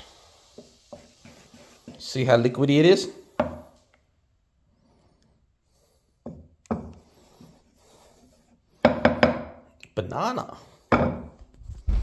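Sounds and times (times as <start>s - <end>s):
spoon stirring batter: 0.4s - 2.7s.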